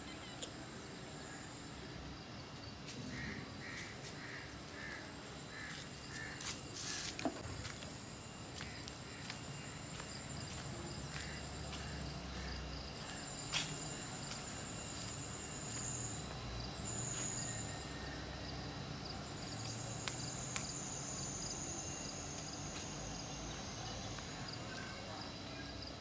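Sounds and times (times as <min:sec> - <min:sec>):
insects trilling: 0:00.0 - 0:26.0.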